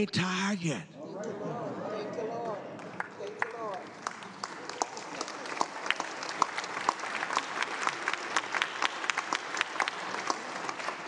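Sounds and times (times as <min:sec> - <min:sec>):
congregation applauding: 0:02.4 - 0:11.0.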